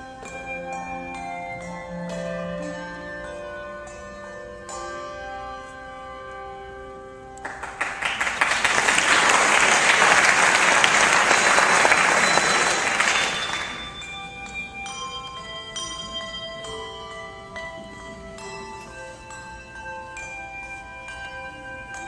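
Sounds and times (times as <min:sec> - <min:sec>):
handbells ringing: 0:00.0 - 0:22.0
audience applause: 0:07.4 - 0:14.0.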